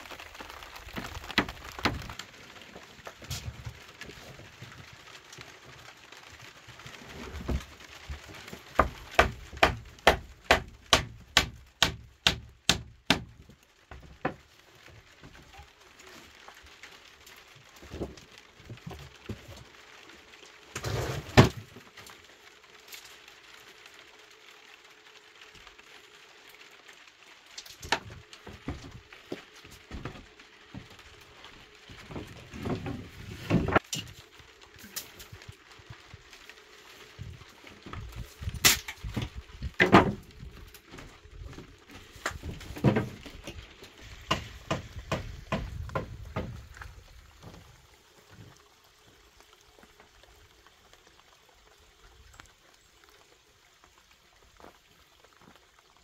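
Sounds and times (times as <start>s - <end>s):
rain falling: 0.0s - 56.0s
knocks and clatters: 37.9s - 46.8s.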